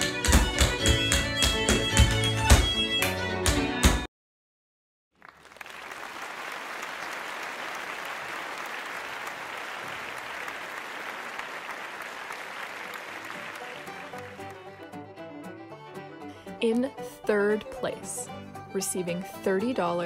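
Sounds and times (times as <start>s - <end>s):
crowd applauding: 5.2s - 14.9s.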